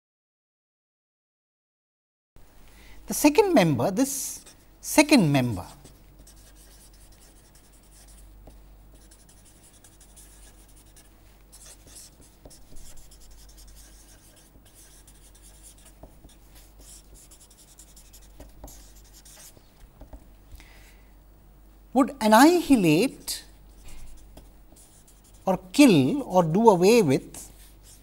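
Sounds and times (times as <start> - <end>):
low steady hum: 2.4 - 28.0
marker scratching on paper: 4.2 - 4.6, 5.4 - 20.2, 23.7 - 26.2, 27.3 - 28.0.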